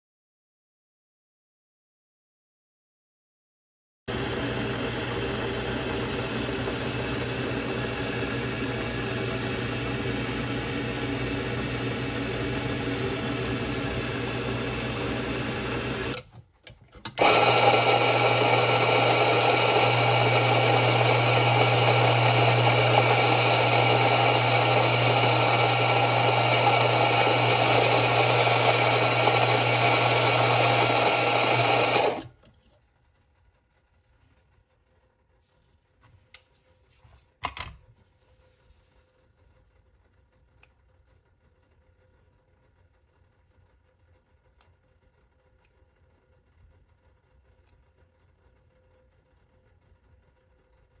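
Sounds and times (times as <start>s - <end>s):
coffee grinder motor hum: 4.1s - 16.2s, 17.1s - 32.4s.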